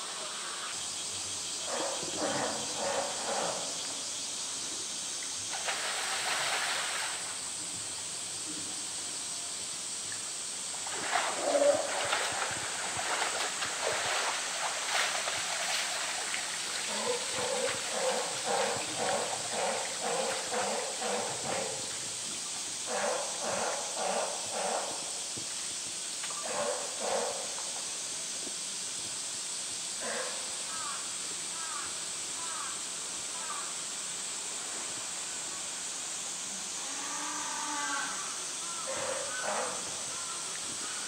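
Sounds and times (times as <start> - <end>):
steady hiss of water: 0.0 - 41.0
animal splashing in water: 5.5 - 7.3, 10.8 - 21.7.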